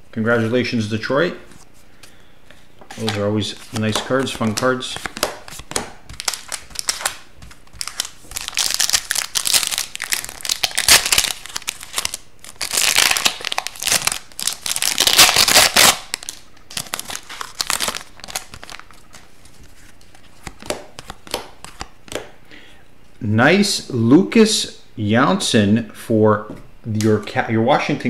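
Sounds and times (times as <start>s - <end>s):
foil wrapper crinkling: 3.0s - 21.2s.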